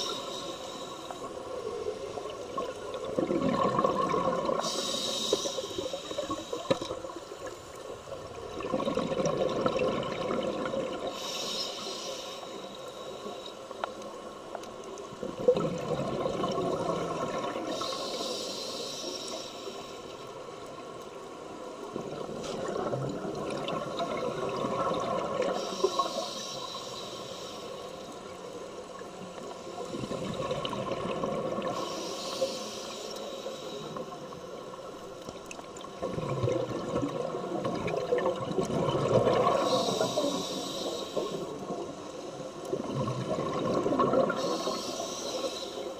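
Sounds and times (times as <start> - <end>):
bubbling exhale: 3.0 - 7.0
diver inhaling through regulator: 4.5 - 6.8, 11.0 - 13.6, 17.7 - 20.1, 25.5 - 28.0, 31.7 - 34.3, 39.4 - 41.6, 44.3 - 45.9.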